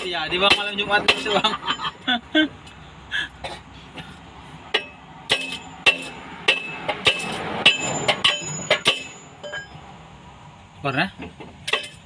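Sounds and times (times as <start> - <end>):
hammer striking metal: 4.7 - 9.8.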